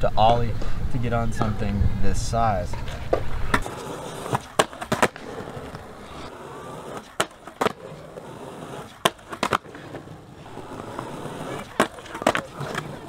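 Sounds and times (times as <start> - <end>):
skateboard wheels rolling on concrete: 0.2 - 13.0
skateboard clacking: 2.7 - 13.0.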